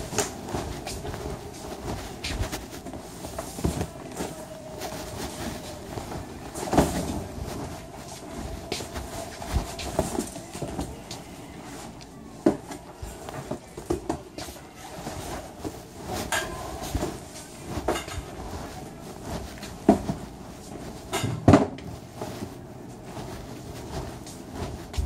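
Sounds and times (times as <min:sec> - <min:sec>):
cardboard boxes being moved: 0:00.0 - 0:21.2.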